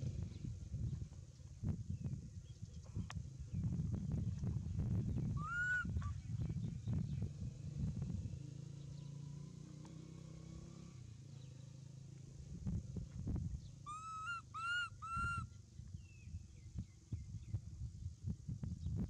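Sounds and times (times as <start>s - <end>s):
baby monkey coo calls: 5.4s - 6.1s, 13.9s - 15.5s.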